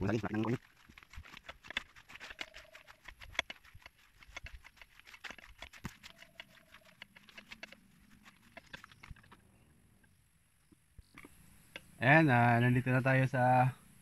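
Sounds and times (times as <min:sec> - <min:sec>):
footsteps through grass and leaves: 0:00.0 - 0:09.3.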